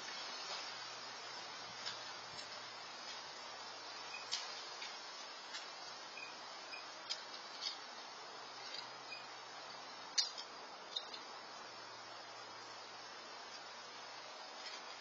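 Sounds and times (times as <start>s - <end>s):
microphone hiss: 0.0s - 15.0s.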